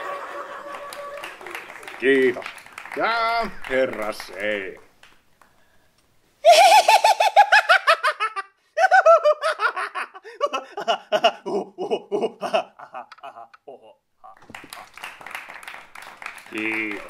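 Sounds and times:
man cackling laugh: 6.4s - 15.0s.

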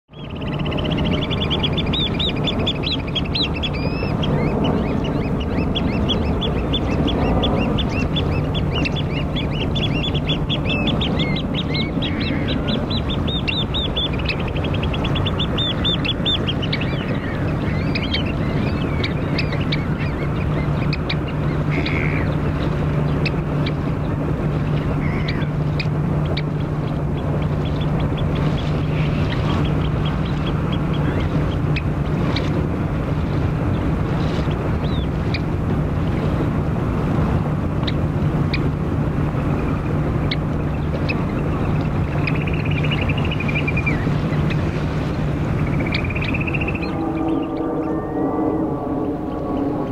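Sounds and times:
birds piping calls: 0.1s - 32.7s, 33.4s - 35.6s, 39.3s - 49.9s
low ship engine drone: 0.1s - 49.9s
shallow sea water washing: 0.1s - 49.9s.

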